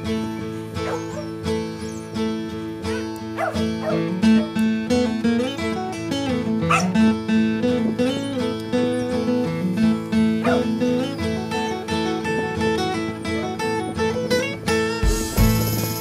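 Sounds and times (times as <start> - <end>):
dog barking: 0.8 - 1.3, 2.9 - 4.5, 6.7 - 7.0, 10.4 - 10.7
song playing: 2.6 - 16.0.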